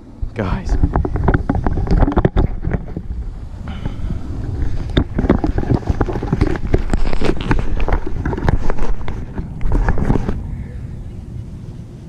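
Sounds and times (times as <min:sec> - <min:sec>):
low wind rumble: 0:00.0 - 0:12.0
camera handling knocks and rustles: 0:00.7 - 0:03.1, 0:03.7 - 0:10.4.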